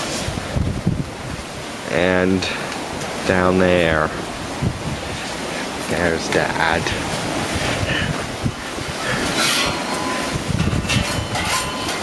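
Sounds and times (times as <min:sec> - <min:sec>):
thin metallic squeal: 0:09.3 - 0:12.0.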